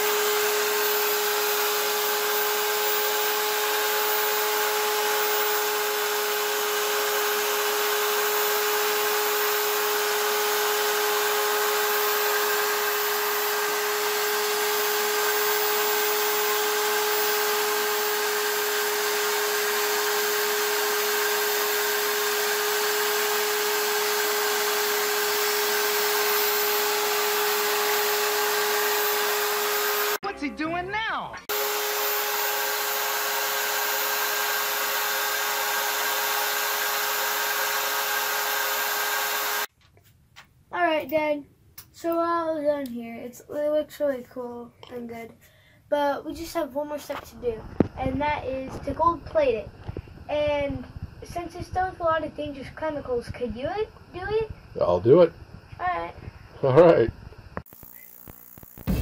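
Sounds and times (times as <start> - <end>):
small electric motor whining: 0.0 - 30.2, 31.5 - 39.7, 57.6 - 59.0.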